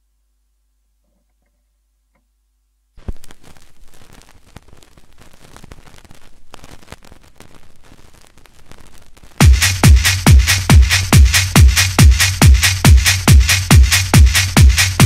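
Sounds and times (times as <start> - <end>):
stylus touching down on record: 3.0 - 15.0
vinyl crackling and pops: 3.0 - 15.0.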